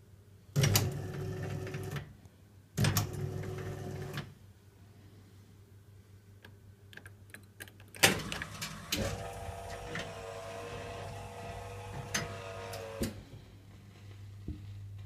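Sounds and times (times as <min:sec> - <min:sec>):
jukebox mechanism motor running: 0:08.0 - 0:13.2.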